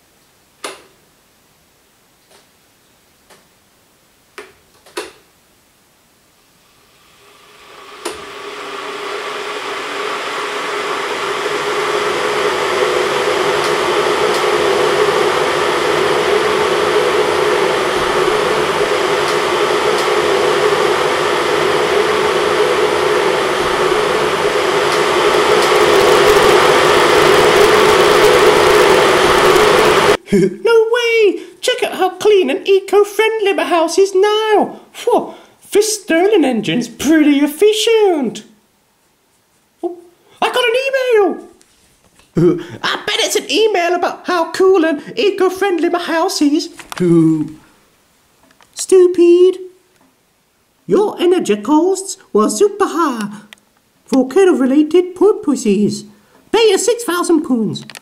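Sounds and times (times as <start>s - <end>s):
kettles boiling water: 6.6s - 30.2s.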